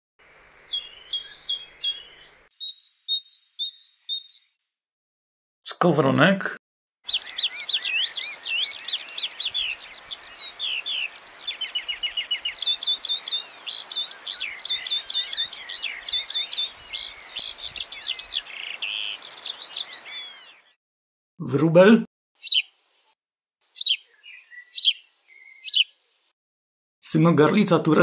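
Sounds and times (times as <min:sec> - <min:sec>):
skylark singing: 0:00.5 - 0:04.6, 0:07.0 - 0:20.7, 0:22.4 - 0:22.9, 0:23.7 - 0:26.3.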